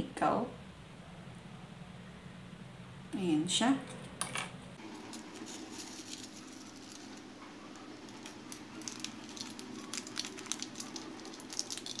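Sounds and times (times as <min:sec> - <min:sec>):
plastic bag rustling: 0:04.8 - 0:12.0.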